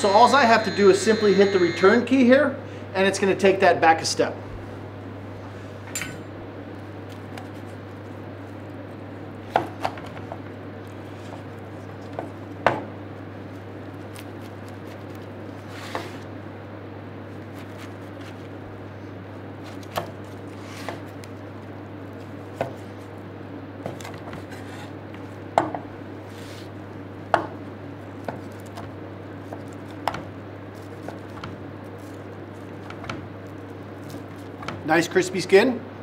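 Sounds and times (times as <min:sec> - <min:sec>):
low hum: 0:00.0 - 0:02.1.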